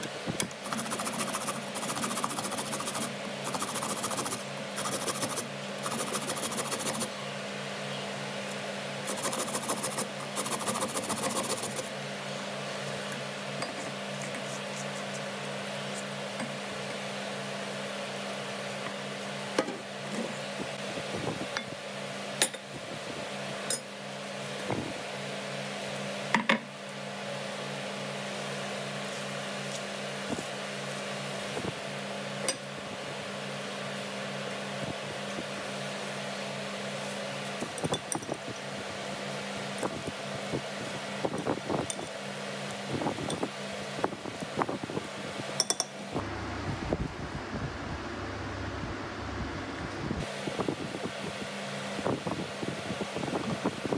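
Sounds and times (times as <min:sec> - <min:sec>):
steady hum: 0:00.0 - 0:22.1, 0:27.0 - 0:53.9
carrot grated on metal grater: 0:00.6 - 0:07.1, 0:09.0 - 0:11.9.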